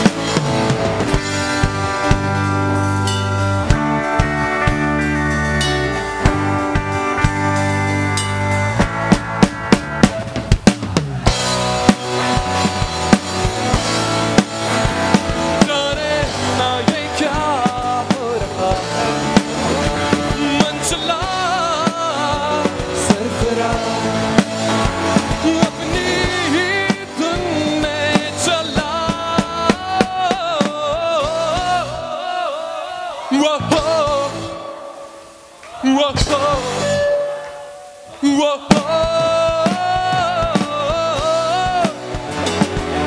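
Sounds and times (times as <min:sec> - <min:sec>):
bending lead guitar line: 0:00.0 - 0:43.0
rock band instrumental: 0:00.0 - 0:43.0.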